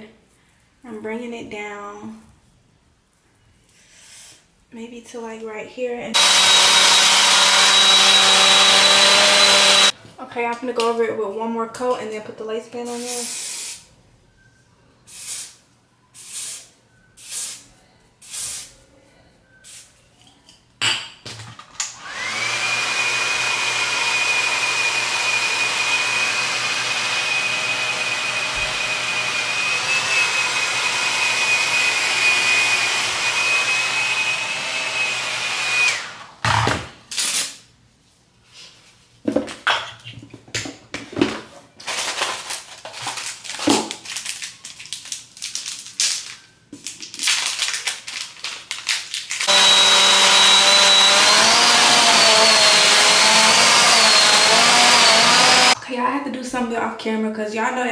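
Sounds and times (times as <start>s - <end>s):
hair dryer blowing with whine: 6.2s - 9.9s, 22.0s - 36.4s, 49.4s - 55.8s
aerosol spray can hisses: 13.0s - 13.9s.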